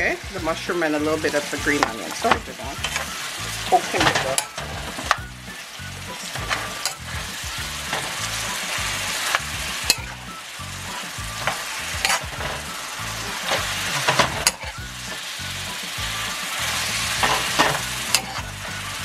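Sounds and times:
food sizzling in a skillet: 0.0 - 19.0
metal spoon scraping a pan: 6.1 - 10.2, 10.9 - 15.2, 16.7 - 18.5.

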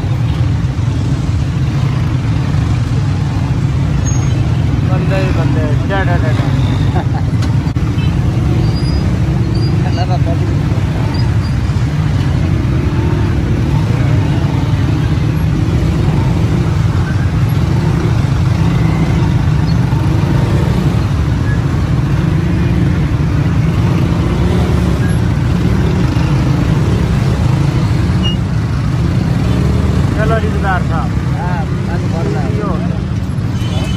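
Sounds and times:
motorcycle engine rumble: 0.0 - 33.9.

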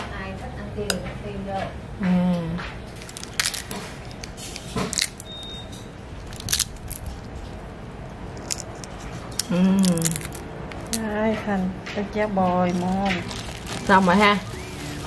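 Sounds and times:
dry crackles and rustles: 2.9 - 5.3, 6.2 - 11.1, 12.7 - 15.0.

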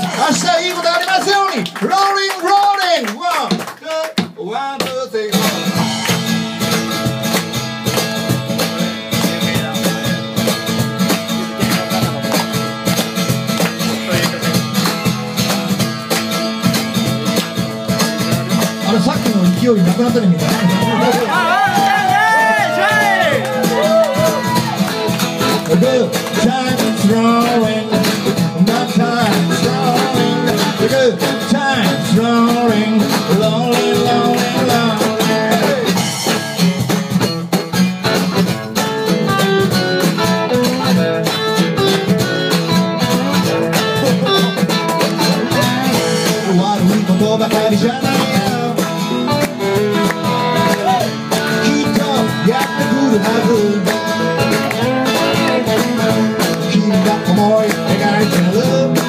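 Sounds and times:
guitar strumming: 0.0 - 2.6, 4.2 - 59.0
person singing: 25.4 - 36.0, 43.2 - 59.0.

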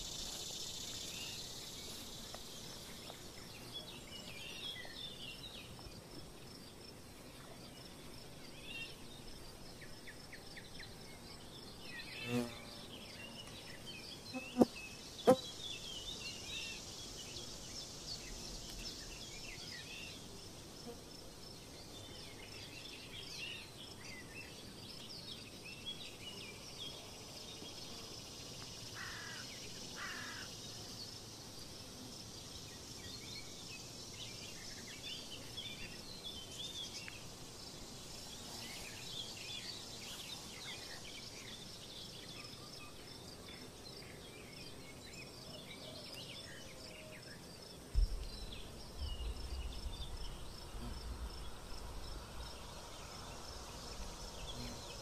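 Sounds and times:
small birds chirping: 0.0 - 20.7, 21.4 - 55.0
low thump: 47.9 - 52.6
low rumbling: 48.0 - 54.2.

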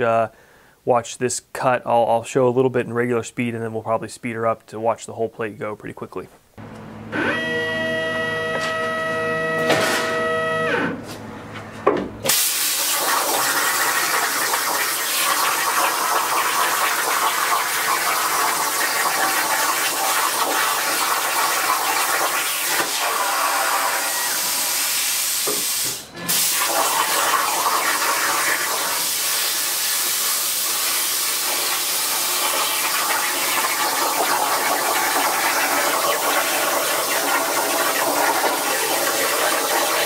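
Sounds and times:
machine whine: 6.6 - 11.8
plasma arc hissing: 12.3 - 15.4, 21.8 - 33.9.

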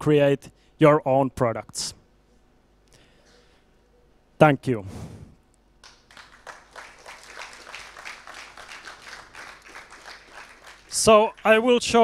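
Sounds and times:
audience applauding: 5.8 - 11.7.

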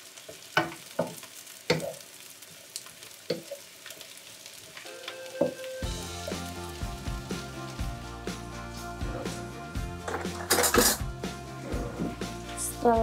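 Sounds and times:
food sizzling in a frying pan: 0.0 - 13.0
background music: 4.9 - 13.0
spatula knocking and scraping pan: 10.0 - 12.4.

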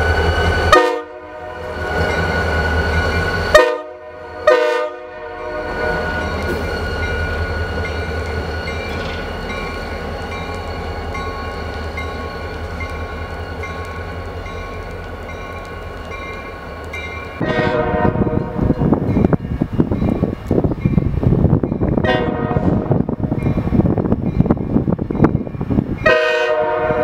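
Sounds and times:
diesel locomotive engine hum: 0.0 - 27.0
locomotive bell ringing: 5.4 - 17.5, 18.2 - 22.0.

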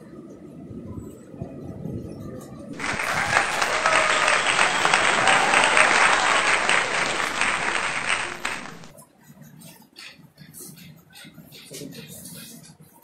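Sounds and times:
crowd applause: 2.8 - 8.9.

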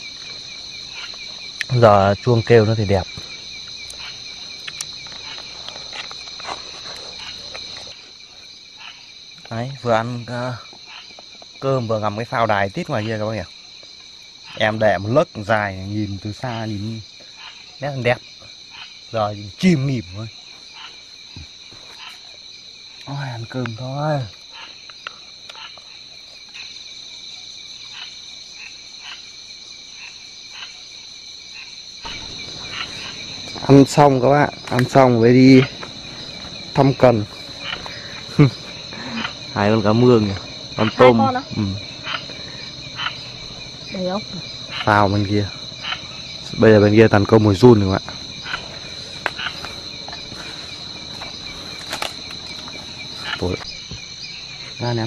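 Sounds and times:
insects trilling: 0.0 - 55.0
faint scattered clicks: 3.7 - 8.0, 51.1 - 53.7.

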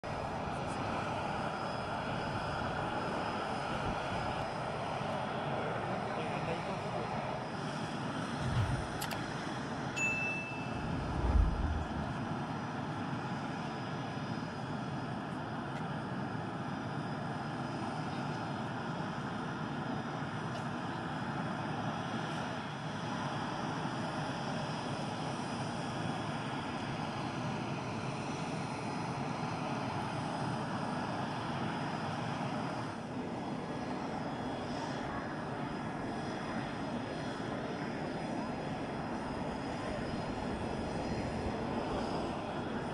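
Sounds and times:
aircraft engine noise: 0.1 - 15.0, 29.6 - 42.9
short high beep: 10.0 - 11.0
low thump: 10.7 - 12.2.

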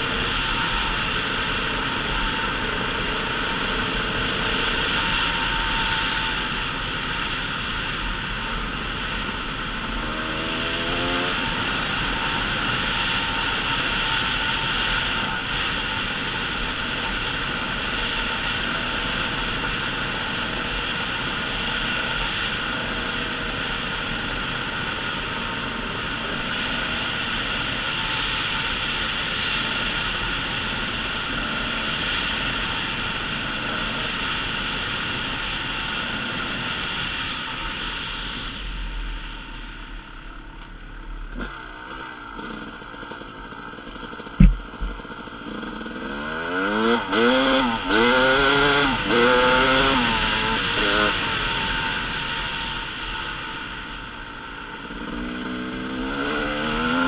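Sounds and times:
dirt bike engine: 0.0 - 57.0
rushing air noise: 44.0 - 45.9
sharp knock: 44.4 - 45.0.

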